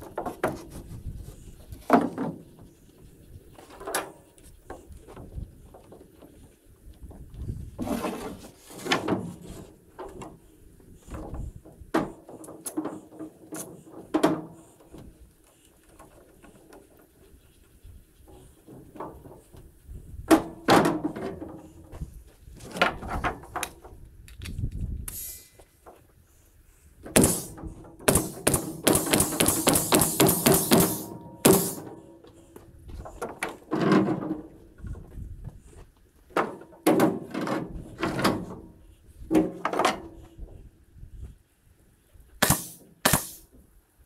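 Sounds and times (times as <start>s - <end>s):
loud thuds: 27.1s - 32.0s.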